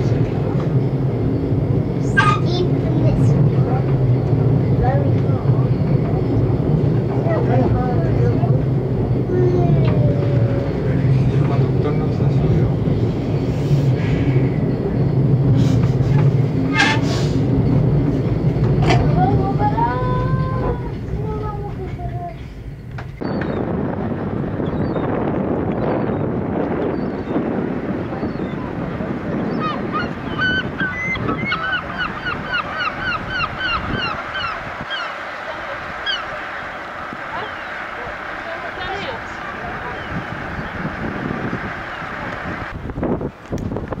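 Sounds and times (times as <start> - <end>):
funicular car rumble: 0.0 - 44.0
gulls yelping calls: 28.1 - 41.0.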